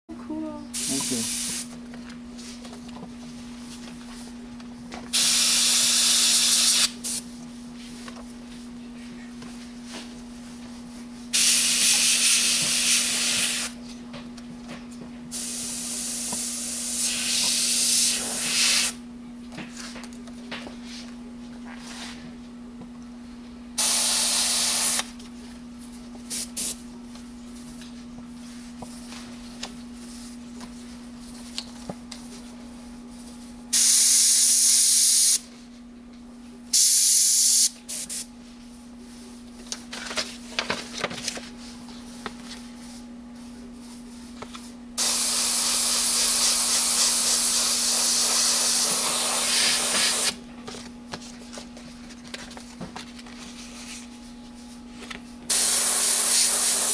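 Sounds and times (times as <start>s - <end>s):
airbrush spraying hiss: 45.0s - 50.3s, 55.5s - 56.9s.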